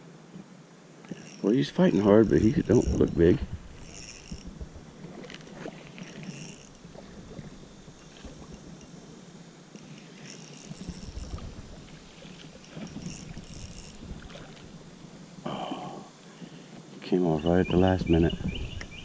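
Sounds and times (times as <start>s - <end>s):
fishing reel cranking: 1.0s - 15.0s.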